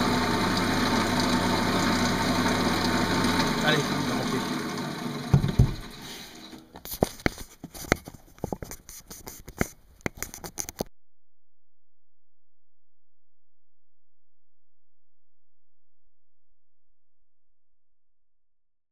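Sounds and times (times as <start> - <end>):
wood lathe spinning down: 0.0 - 6.7
heavy thumps: 5.3 - 5.9.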